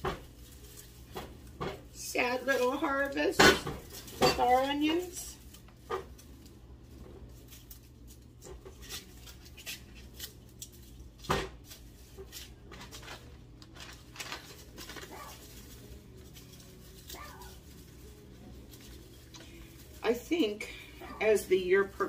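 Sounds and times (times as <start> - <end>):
onions being handled and cut: 0.0 - 22.0.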